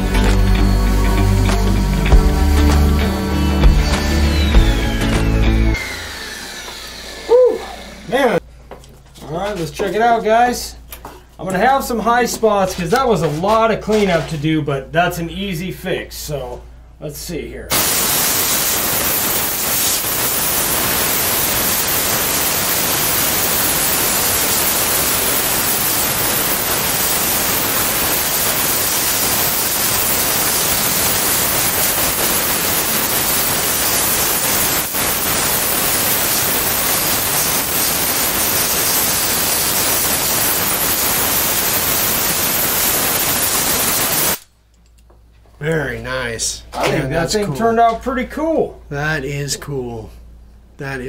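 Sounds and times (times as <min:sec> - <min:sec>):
compressed air blow gun hissing: 0:17.7 - 0:44.4.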